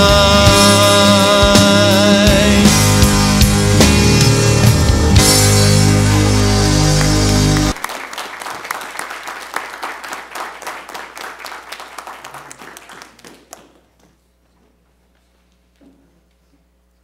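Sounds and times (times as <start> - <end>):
held musical chord ringing: 3.2 - 7.8
congregation applause: 5.3 - 14.0.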